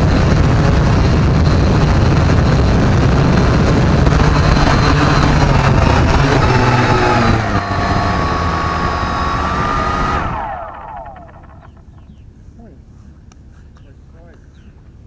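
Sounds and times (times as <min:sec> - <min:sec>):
drone propellers buzzing: 0:00.0 - 0:12.2.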